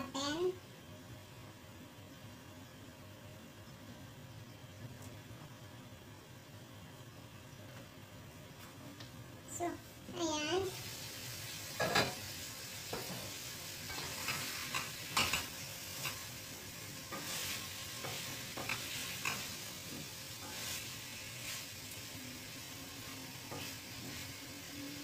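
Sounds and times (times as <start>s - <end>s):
food sizzling in a frying pan: 9.6s - 25.0s
spatula scraping and knocking pan: 12.9s - 16.2s, 17.1s - 21.6s, 23.4s - 24.3s.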